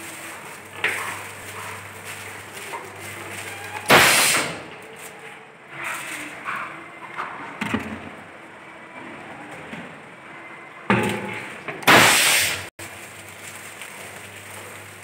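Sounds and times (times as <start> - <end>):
compressed air hiss: 3.9 - 4.6, 11.9 - 12.7.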